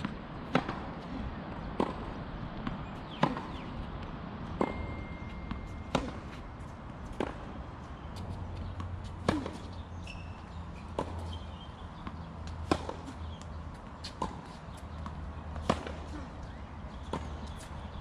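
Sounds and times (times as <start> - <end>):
tennis ball struck by rackets: 0.0 - 1.0, 1.7 - 3.7, 4.5 - 6.4, 7.1 - 7.6, 8.2 - 9.8, 10.9 - 11.4, 12.0 - 16.2.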